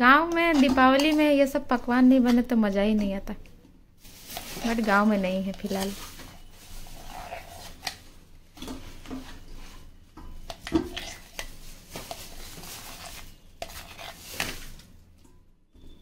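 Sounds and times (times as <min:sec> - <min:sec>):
metal spoon scraping steel bowl: 0:06.8 - 0:07.9, 0:12.9 - 0:14.6.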